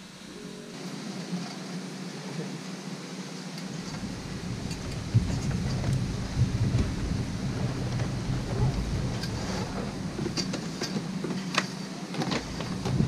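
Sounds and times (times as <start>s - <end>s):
wind buffeting microphone: 3.7s - 11.5s, 12.2s - 13.0s.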